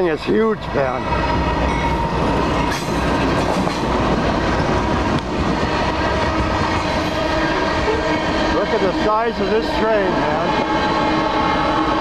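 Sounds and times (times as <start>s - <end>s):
diesel locomotive rumbling: 0.0s - 12.0s
clanks of wheels and couplings: 2.7s - 3.9s.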